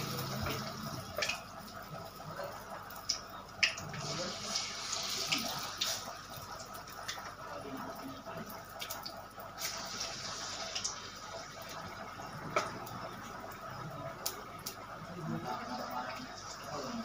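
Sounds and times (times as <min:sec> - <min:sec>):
fritters sizzling in hot oil: 0:00.0 - 0:02.5, 0:03.1 - 0:06.6, 0:08.9 - 0:14.5.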